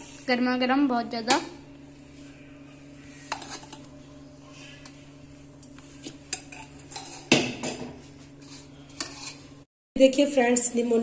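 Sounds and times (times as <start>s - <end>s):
faint steady hum: 0.0s - 11.0s
metal spoon scraping a pot: 3.0s - 3.9s, 5.8s - 9.7s
steel dishes clattering: 6.3s - 7.9s.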